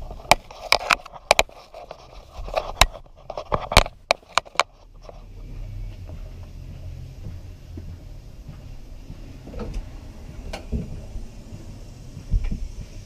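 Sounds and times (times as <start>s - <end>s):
low steady hum: 0.0s - 13.0s
sharp clicks and knocks: 0.1s - 6.6s, 7.2s - 13.0s.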